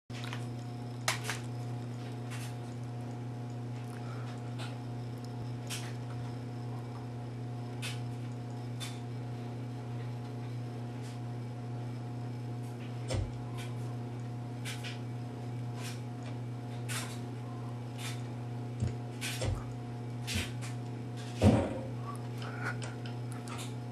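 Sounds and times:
low electrical hum: 0.1 - 23.9.

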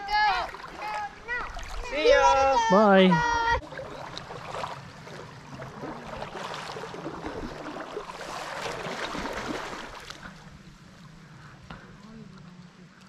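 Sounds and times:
river water babbling: 0.0 - 13.0
fish thrashing at the surface: 3.8 - 10.3.

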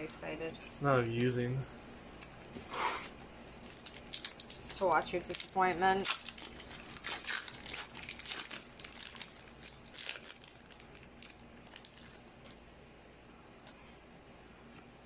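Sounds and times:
foil wrapper crinkling and tearing: 3.6 - 12.6.

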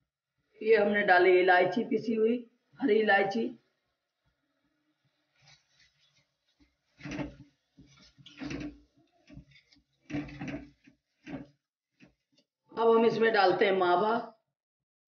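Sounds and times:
wooden spatula scraping metal pan: 5.3 - 12.3.

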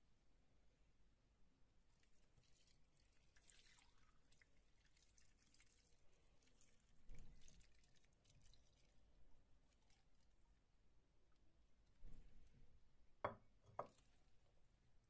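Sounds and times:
liquid pouring and trickling: 1.9 - 10.5.

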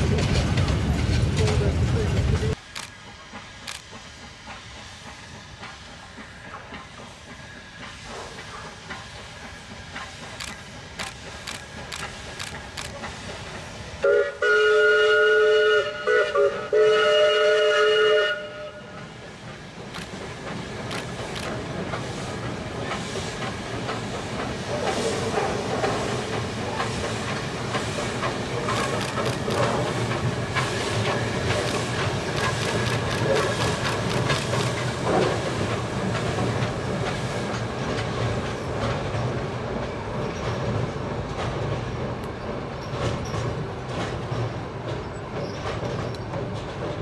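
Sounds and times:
wheels clicking over rail joints: 0.0 - 13.6, 19.4 - 47.0
train rumbling on bridge: 0.0 - 47.0
steam locomotive whistle: 14.0 - 19.0.

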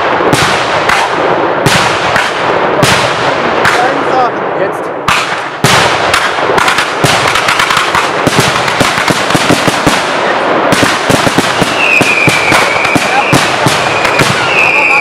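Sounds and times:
fireworks bangs and crackles: 0.0 - 15.0
steady high whistle: 11.7 - 15.0.

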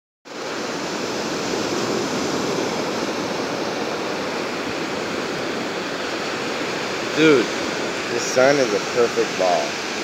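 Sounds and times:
ocean surf on beach: 0.3 - 10.0.

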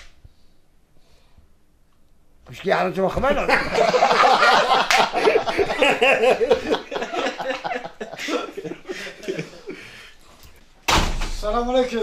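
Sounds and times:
men laughing heartily: 3.2 - 10.2.

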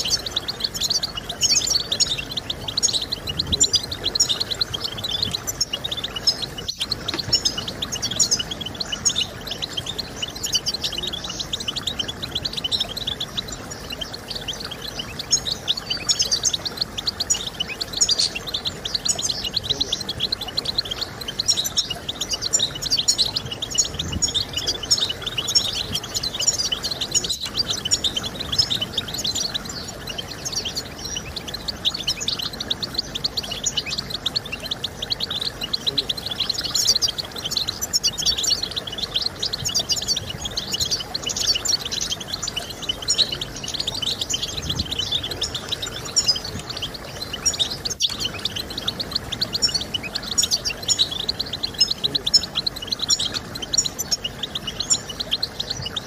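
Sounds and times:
finch twittering song: 0.0 - 56.0.

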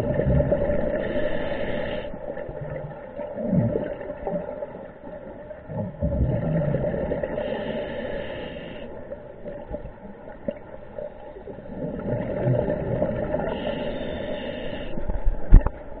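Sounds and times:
exhaled bubbles gurgling: 0.0 - 16.0
scuba regulator hissing: 13.5 - 14.9.

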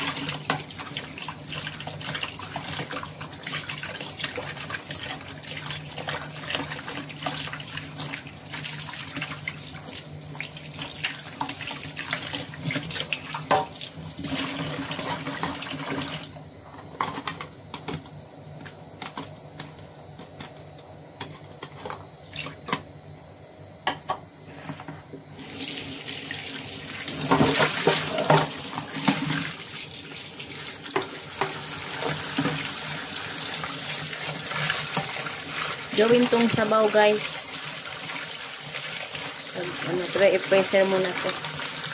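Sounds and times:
tap water running into a sink: 0.0 - 16.4, 25.3 - 41.9.

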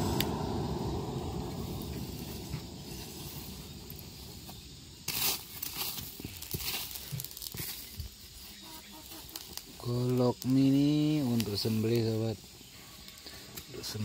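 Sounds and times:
forge air blast rumble: 0.0 - 5.6
clinks of shifting coals: 3.9 - 14.0.

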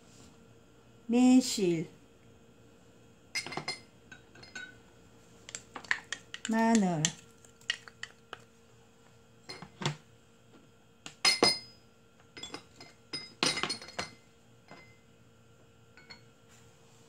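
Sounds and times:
ceramic and glass containers clinking: 3.4 - 4.8, 11.2 - 11.7, 12.4 - 14.9.

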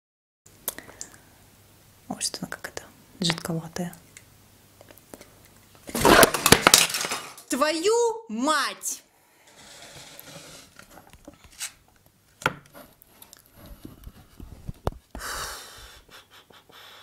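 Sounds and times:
breathy exhale: 9.1 - 10.1, 15.2 - 16.1, 16.7 - 17.0.

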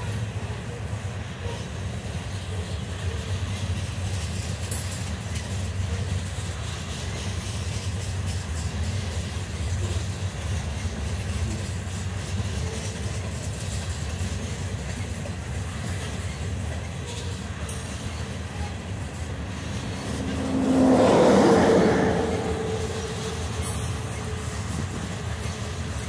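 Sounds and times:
freight train rolling past: 0.0 - 26.0
clicks of train wheels: 1.4 - 21.4.

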